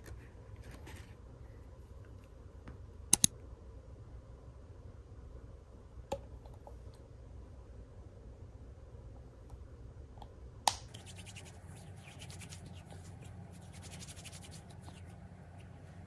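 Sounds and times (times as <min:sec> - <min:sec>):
sharp click: 0:03.1 - 0:03.3
hands rubbing lotion: 0:10.9 - 0:16.0.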